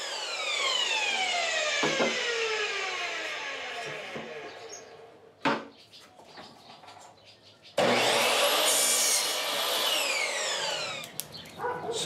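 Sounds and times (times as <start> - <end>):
saw blade cutting wood: 0.0 - 4.7, 7.8 - 11.1
miter saw motor whining: 0.0 - 4.9, 7.8 - 11.2.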